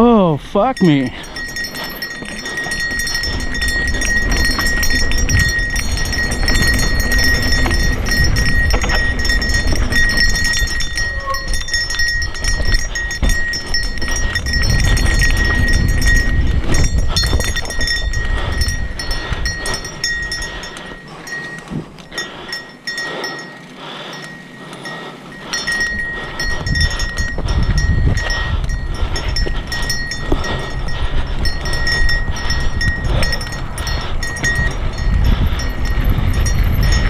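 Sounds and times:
wind rumble on microphone: 1.1 - 23.2, 23.8 - 37.0
bike rattling over rock: 1.4 - 28.3.

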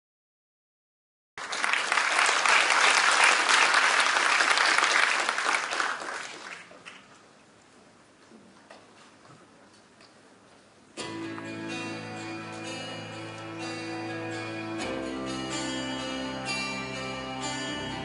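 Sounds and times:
audience applauding: 1.4 - 7.1.

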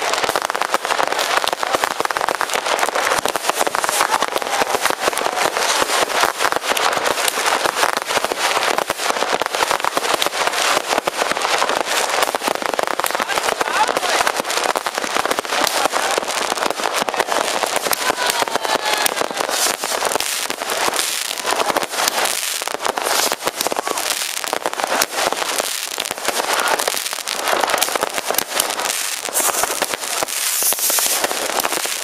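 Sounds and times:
fireworks crackling and banging: 0.0 - 32.0
firework whistles: 28.8 - 32.0.

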